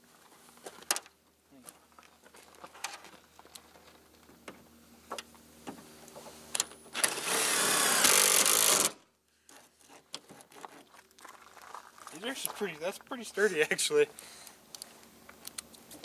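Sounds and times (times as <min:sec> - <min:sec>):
cordless drill driving screw: 0:07.0 - 0:09.0.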